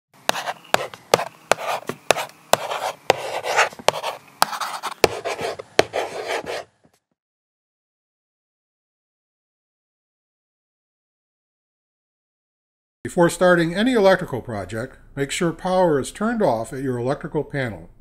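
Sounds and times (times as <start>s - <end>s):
pen tapping: 0.3s - 6.7s
pen scribbling on paper: 0.3s - 6.8s.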